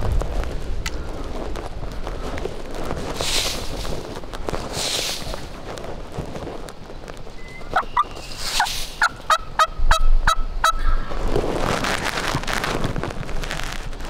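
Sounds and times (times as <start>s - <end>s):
rustling: 0.0s - 9.7s, 10.8s - 14.0s
turkey yelping: 7.7s - 11.1s.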